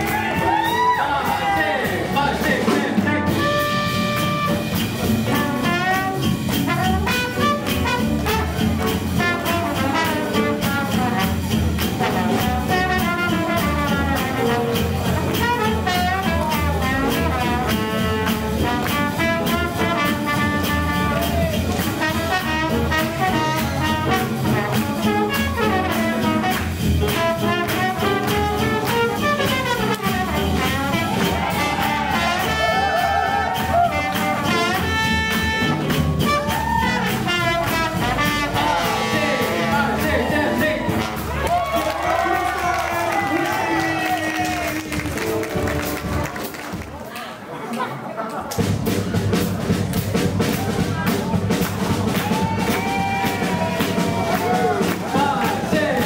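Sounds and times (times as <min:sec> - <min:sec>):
steady drum beat: 0:00.0 - 0:47.0, 0:48.6 - 0:56.0
brass horns playing melody: 0:02.9 - 0:43.7.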